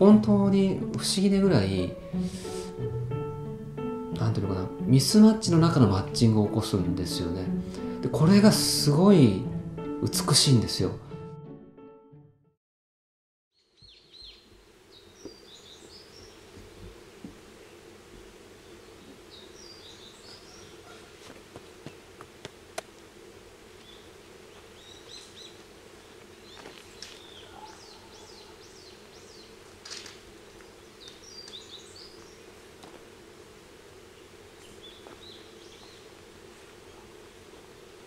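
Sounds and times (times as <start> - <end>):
birds chirping: 13.6 - 22.1, 23.6 - 32.8, 33.8 - 38.0.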